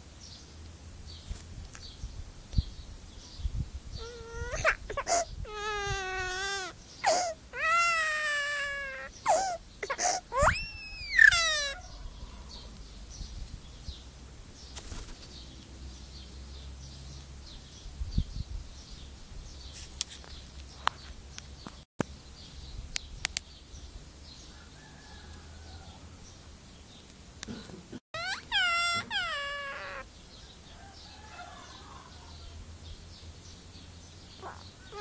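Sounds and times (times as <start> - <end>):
myna wailing call: 4.0 - 12.5, 28.2 - 30.1, 34.4 - 35.0.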